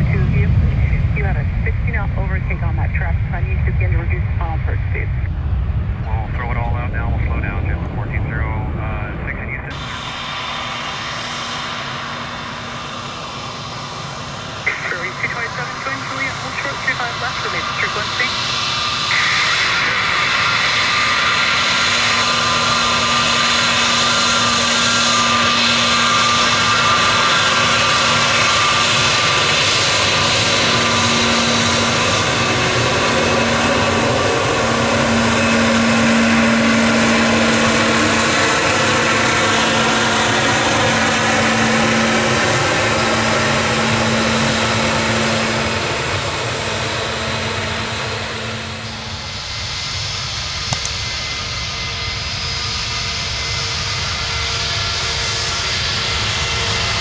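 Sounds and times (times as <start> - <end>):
faint engine whine: 0.0 - 57.0
jet engines roaring: 0.0 - 57.0.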